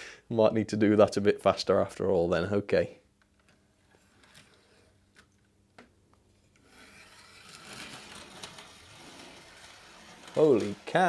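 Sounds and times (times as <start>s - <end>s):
model train running on rails: 6.7s - 11.0s.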